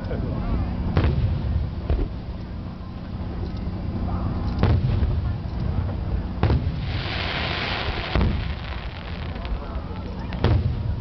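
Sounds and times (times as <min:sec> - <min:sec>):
firework booms: 0:01.0 - 0:02.2, 0:06.4 - 0:11.0
firework pops: 0:06.4 - 0:10.9
firework crackling hiss: 0:06.6 - 0:10.9.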